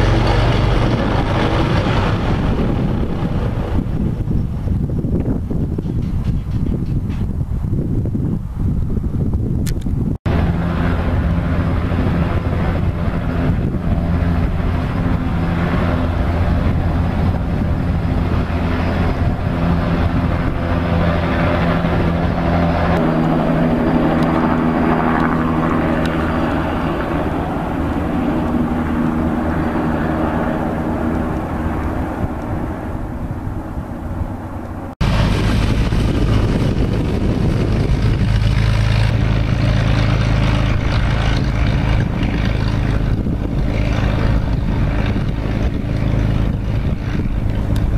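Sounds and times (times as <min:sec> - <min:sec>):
helicopter flying: 0:00.0 - 0:47.9
propeller airplane engine running: 0:00.0 - 0:47.9.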